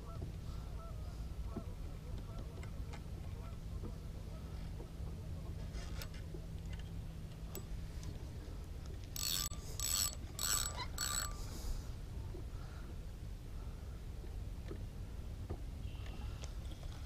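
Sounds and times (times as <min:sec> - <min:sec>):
spinning reel whirring: 0:09.2 - 0:11.4.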